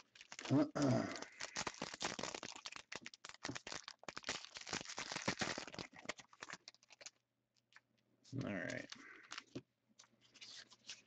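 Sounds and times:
card packaging crinkling and tearing: 0.0 - 7.2, 8.5 - 9.6.

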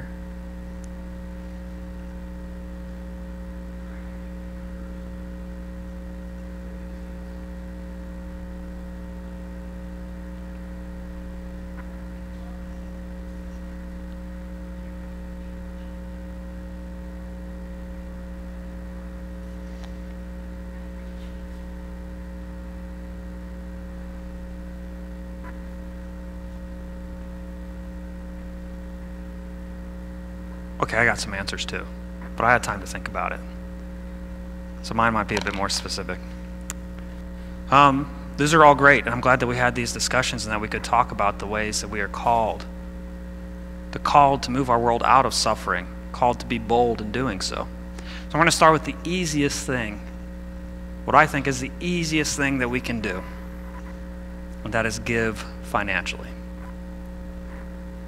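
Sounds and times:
electrical mains hum: 0.0 - 58.0.

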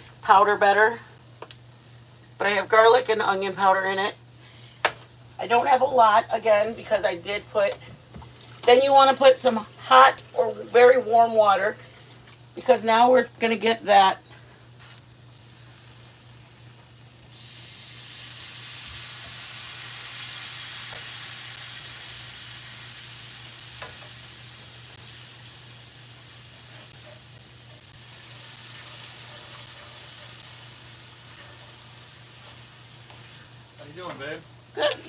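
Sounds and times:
meat sizzling in skillet: 14.4 - 35.0
spatula stirring in pan: 25.9 - 33.8.

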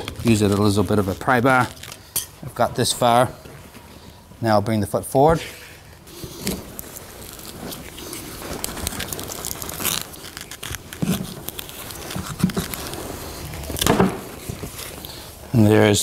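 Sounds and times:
casting tape cracking and tearing: 0.0 - 2.1, 6.1 - 15.4.

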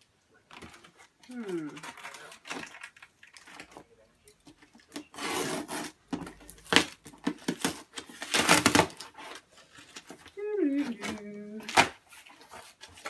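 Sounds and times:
cardboard tearing: 5.0 - 13.0
cardboard rubbing and scraping: 5.1 - 6.0.

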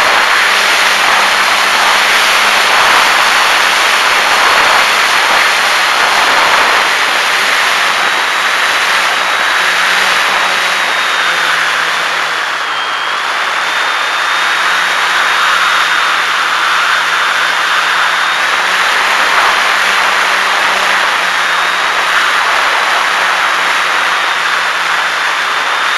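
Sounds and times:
model airplane motor whine: 0.0 - 25.9
rushing air: 0.0 - 25.9.

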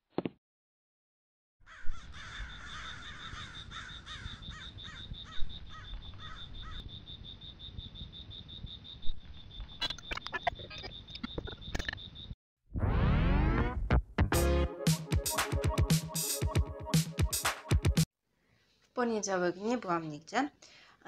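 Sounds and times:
crows cawing: 1.6 - 6.8.

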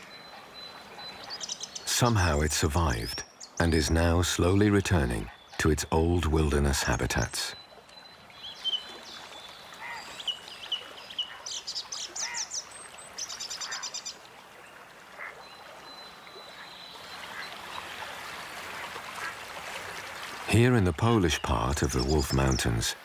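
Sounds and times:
birds chirping and trilling: 0.0 - 18.0, 20.1 - 23.0
soft wash of water: 7.5 - 21.3.

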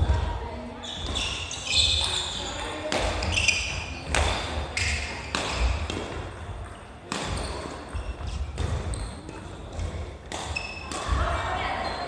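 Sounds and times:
shoes squeaking: 0.8 - 12.0
racket hitting shuttlecock: 2.8 - 11.2.

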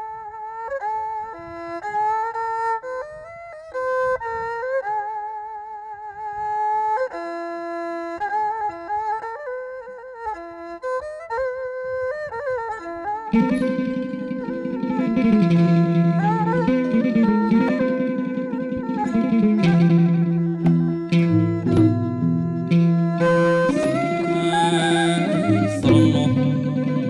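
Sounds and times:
bowed fiddle melody: 0.0 - 27.0
hammered dulcimer: 13.4 - 27.0.

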